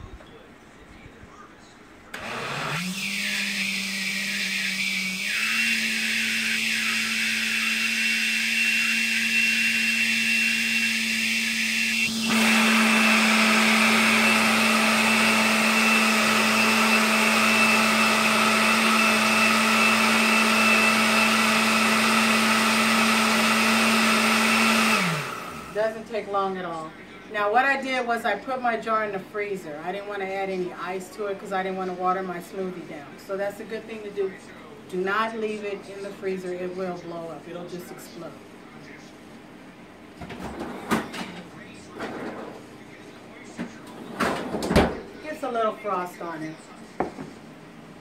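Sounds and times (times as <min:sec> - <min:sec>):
blender motor running: 0:02.2 - 0:25.8.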